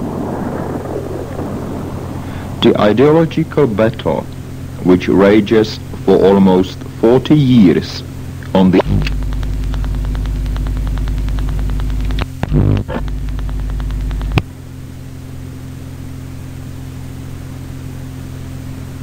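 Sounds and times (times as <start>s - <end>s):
ticking interference buzz: 0.0s - 15.5s
mains hum: 0.0s - 19.0s
static hiss: 0.0s - 19.0s
radio click: 8.4s - 14.5s.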